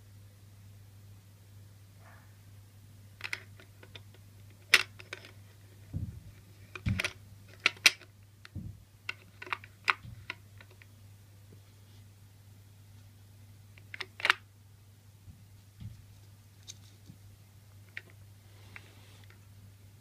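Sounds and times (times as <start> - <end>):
dull thuds: 5.9 - 7.0, 8.6 - 8.8.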